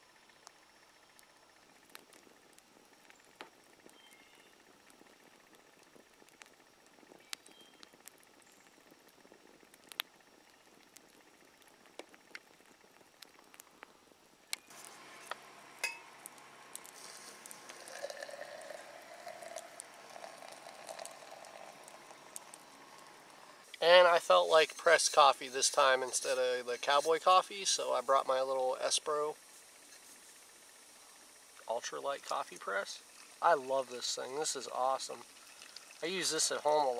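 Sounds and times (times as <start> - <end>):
campfire crackling and popping: 0.0 - 36.9
coffee pouring into metal cup: 14.8 - 27.7, 32.3 - 36.9.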